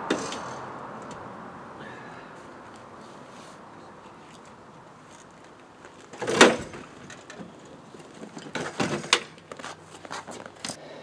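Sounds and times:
heavy clunk: 6.2s - 7.5s.

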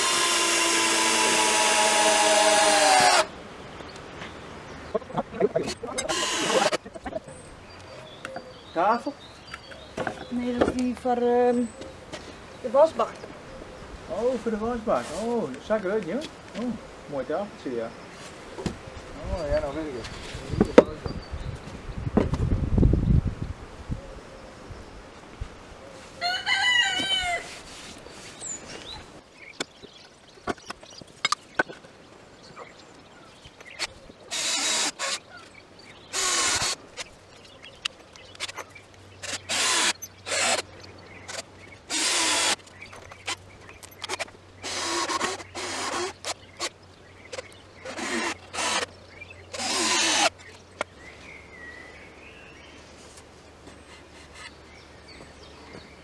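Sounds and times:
cordless drill driving screws: 0.0s - 3.3s, 6.0s - 6.8s, 34.3s - 35.2s, 36.1s - 37.1s, 39.2s - 40.6s, 41.3s - 42.6s, 44.0s - 46.7s, 47.8s - 48.9s, 49.5s - 50.4s
rooster crowing: 26.2s - 27.5s.

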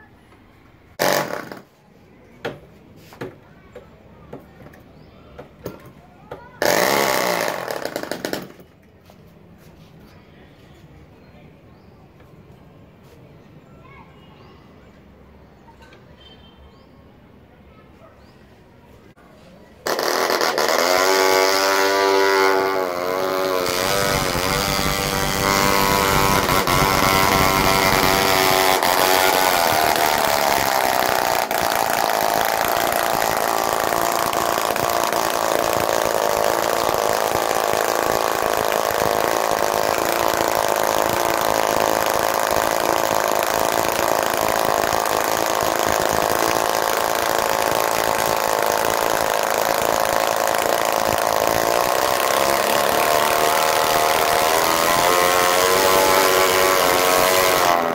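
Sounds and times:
model engine running: 6.6s - 8.6s, 19.8s - 57.9s.

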